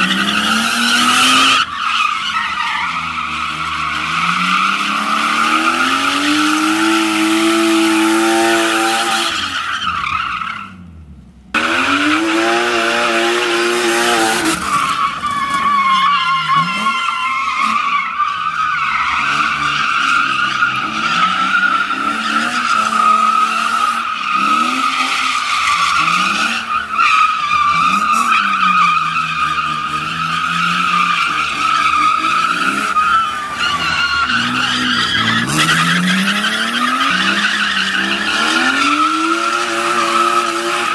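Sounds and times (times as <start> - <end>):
car engine revving: 10.1 - 14.9
tyre squealing: 11.6 - 40.9.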